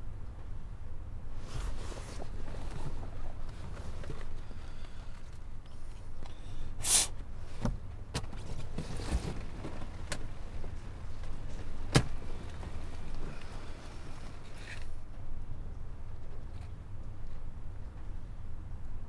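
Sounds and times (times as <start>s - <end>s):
low steady rumble: 0.0s - 19.0s
rustling: 1.4s - 5.4s, 8.3s - 15.0s.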